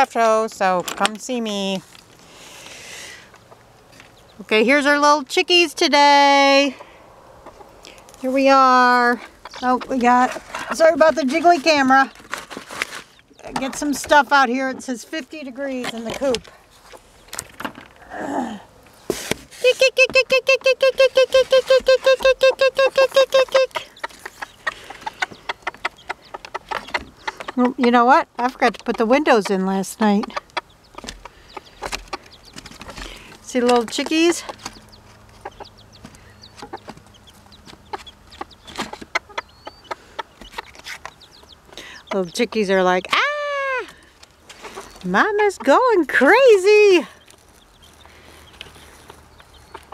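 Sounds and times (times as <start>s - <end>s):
chicks peeping: 2.3s - 17.4s, 19.7s - 49.9s
hen clucking rapidly: 3.3s - 12.4s, 19.7s - 43.2s, 44.0s - 49.9s.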